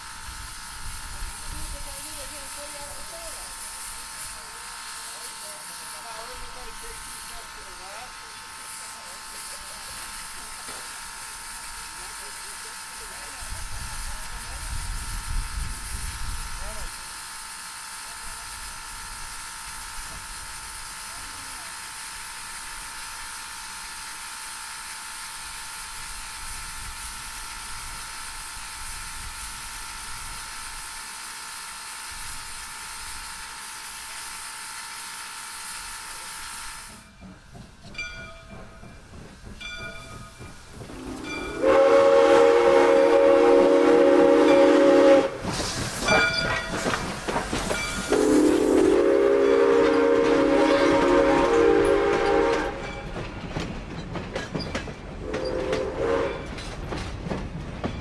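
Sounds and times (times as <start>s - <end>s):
steam locomotive hissing steam: 0.0s - 57.5s
steam whistle blasts: 40.9s - 45.5s, 48.1s - 53.0s, 55.2s - 56.5s.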